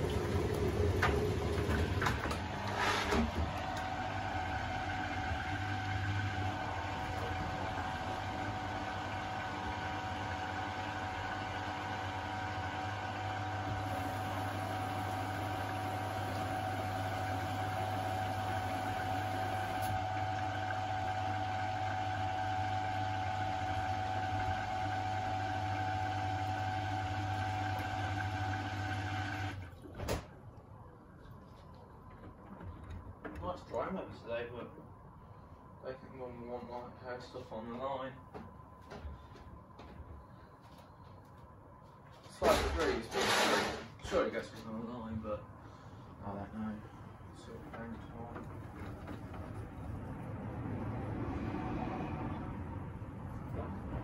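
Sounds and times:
drain pump pumping: 0.0 - 30.2
washing machine spinning: 0.0 - 30.9, 46.2 - 54.0.

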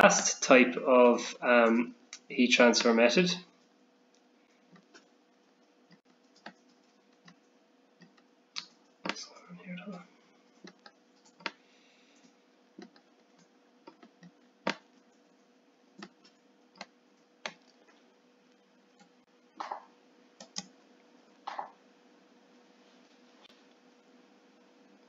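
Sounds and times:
low electrical hum: 0.0 - 25.0
computer mouse and keyboard clicks: 5.9 - 7.4, 10.6 - 11.6, 12.2 - 14.8, 16.0 - 17.8, 19.0 - 20.7.

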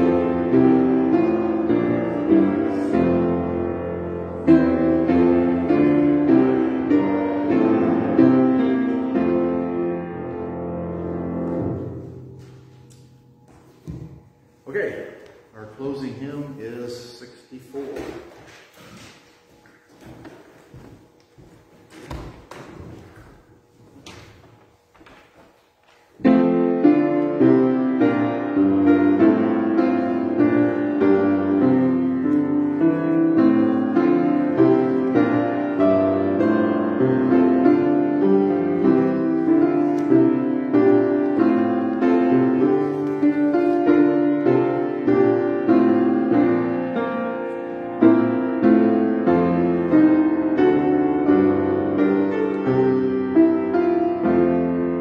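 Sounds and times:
keyboard playing held chords: 0.0 - 13.8, 26.2 - 55.0.

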